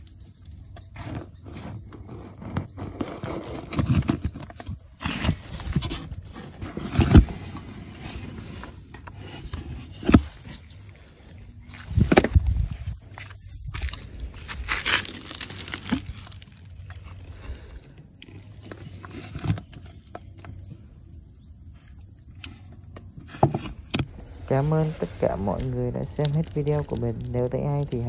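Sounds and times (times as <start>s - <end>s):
wet scraping and rustling of fish: 1.3s - 17.4s.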